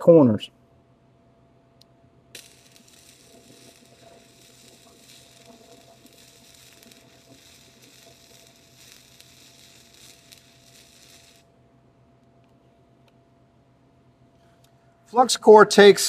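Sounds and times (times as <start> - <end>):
welding arc crackling: 2.3 - 11.5.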